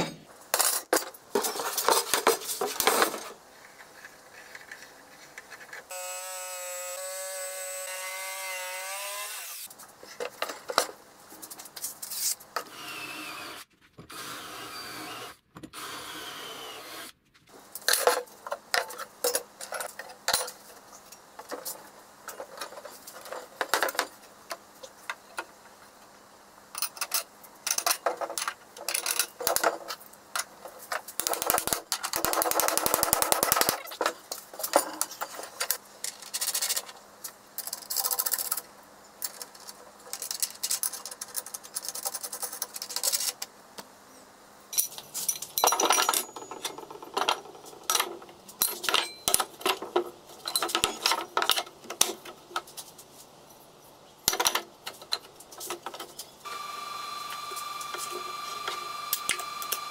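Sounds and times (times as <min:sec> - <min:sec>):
metal parts clinking on wood: 0:44.7 - 0:52.2.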